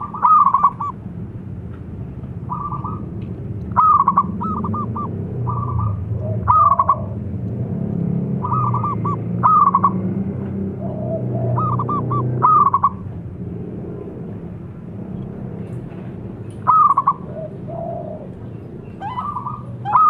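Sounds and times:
dove cooing: 0.0 - 1.0, 2.5 - 7.2, 8.4 - 10.1, 10.7 - 13.1, 16.6 - 20.0
low background hum: 0.0 - 20.0.

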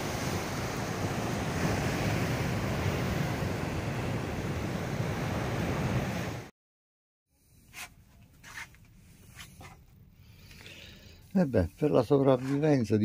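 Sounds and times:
waves washing onto beach: 0.0 - 6.5.

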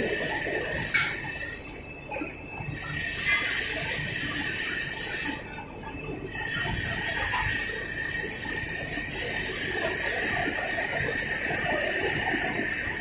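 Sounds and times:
high steady whine: 0.0 - 13.0
industrial machinery noise: 0.0 - 13.0.

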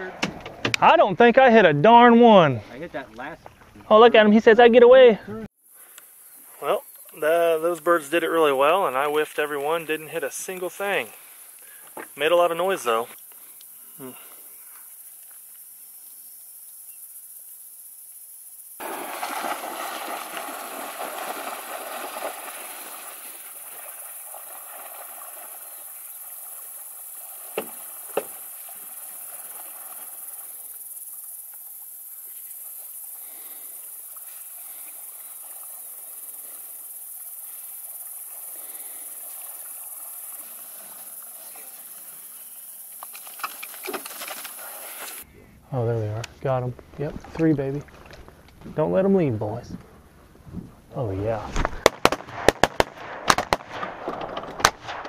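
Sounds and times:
high insect hiss: 0.0 - 55.0
dog splashing in water: 18.8 - 30.2
sharp cracks: 51.5 - 55.0.

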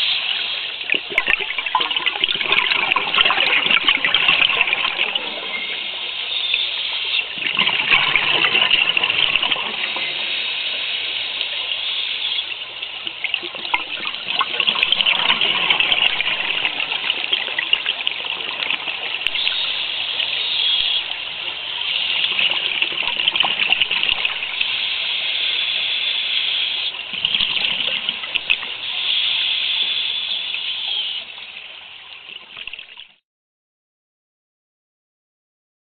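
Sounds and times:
bubbles rushing: 0.9 - 6.0, 7.3 - 10.2, 13.2 - 19.8, 22.3 - 24.6, 27.1 - 28.8
scuba regulator breathing underwater: 27.6 - 31.2.

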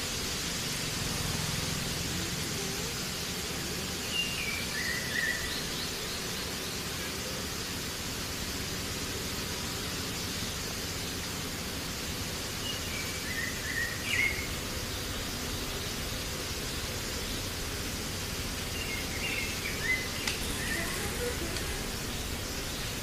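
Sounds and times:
outdoor background noise: 0.0 - 23.0
bird chirps: 4.0 - 6.7, 18.7 - 23.0.

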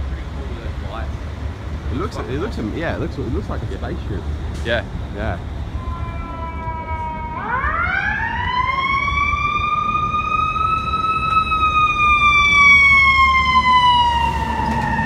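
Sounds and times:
low rumble of truck and traffic: 0.0 - 15.0
fire truck siren wailing: 5.4 - 15.0.

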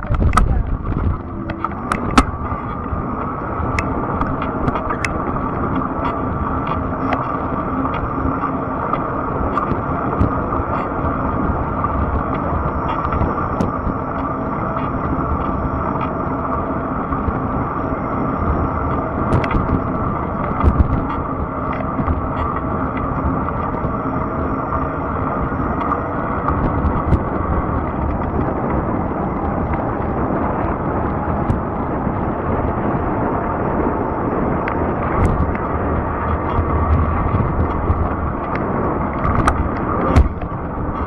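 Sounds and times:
faint motor whine: 0.0 - 41.0
wind on microphone: 0.0 - 41.0
tyres rumbling on trail: 17.8 - 41.0.

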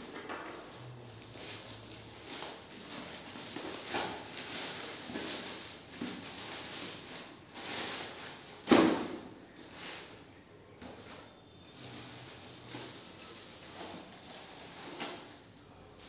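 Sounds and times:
plastic mailer crinkling: 0.5 - 8.4, 11.5 - 16.0.

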